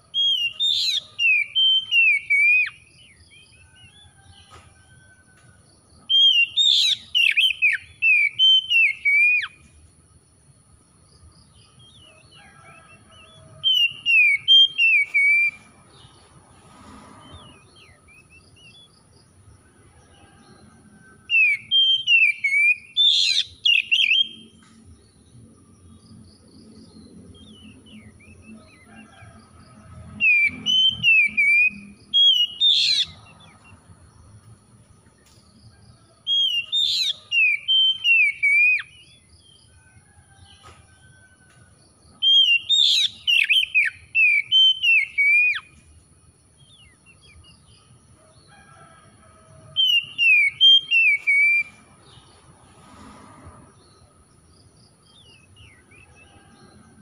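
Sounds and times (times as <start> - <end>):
magpie-robin singing: 0.2 - 3.2, 6.1 - 9.6, 13.7 - 15.6, 21.4 - 24.5, 30.3 - 33.2, 36.4 - 39.0, 42.3 - 45.7, 49.8 - 51.7.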